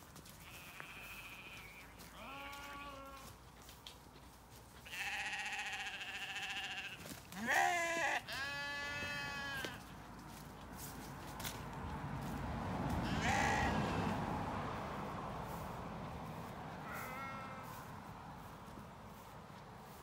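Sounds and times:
sheep bleating: 0.4 - 3.3, 4.8 - 9.8, 13.0 - 14.2, 16.8 - 17.9.

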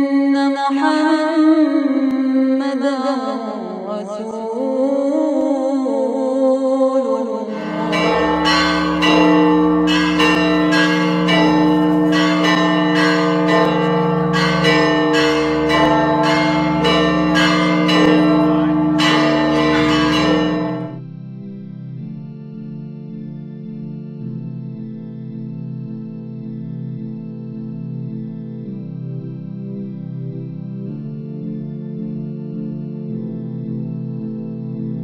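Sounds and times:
church bells ringing: 7.5 - 21.0.

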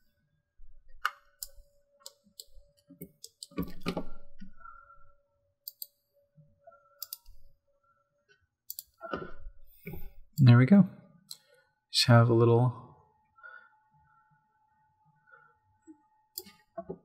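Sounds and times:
faint steady hum: 0.0 - 17.0
computer mouse clicking: 1.0 - 4.0, 5.6 - 6.0, 7.0 - 7.4, 8.7 - 9.0, 16.3 - 16.9.

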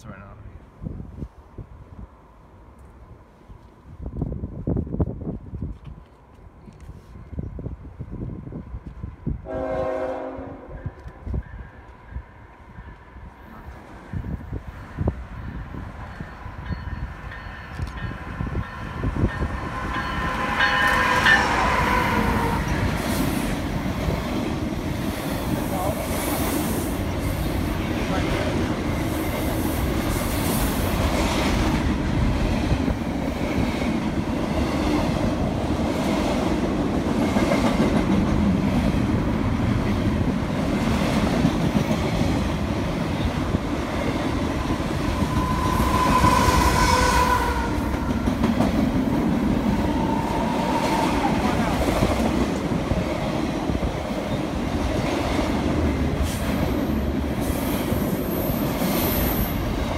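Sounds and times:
freight train wheels rumbling: 0.2 - 59.9
train wheels squealing: 45.0 - 47.6.

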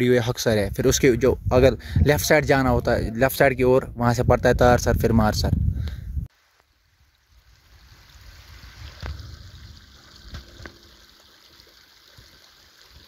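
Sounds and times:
running water rushing: 6.3 - 13.0.

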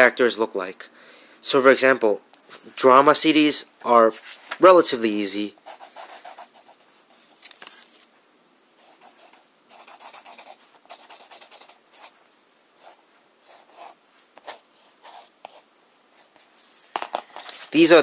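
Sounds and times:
pen writing on paper: 8.8 - 12.1, 12.8 - 15.6.

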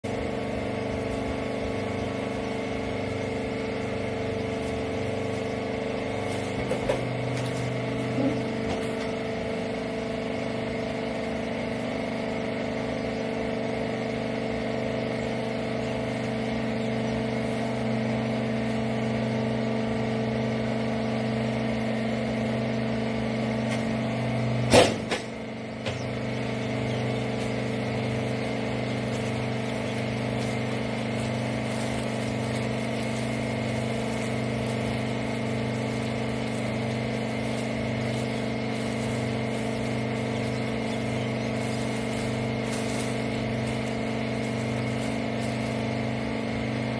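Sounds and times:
hydraulic power unit humming: 0.0 - 46.9.

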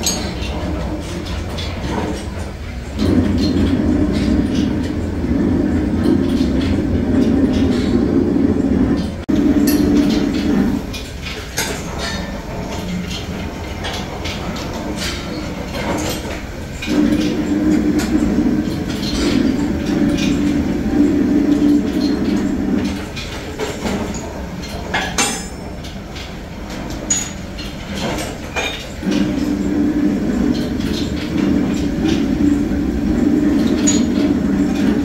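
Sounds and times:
workshop machine humming: 0.0 - 35.0.

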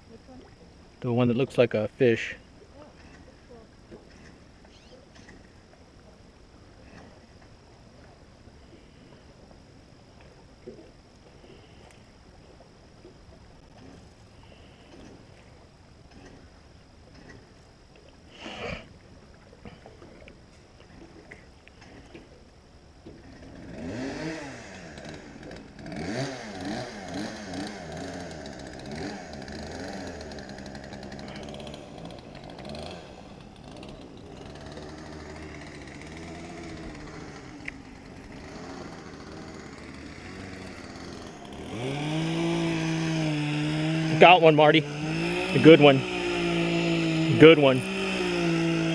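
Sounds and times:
small motor running: 23.1 - 48.9.

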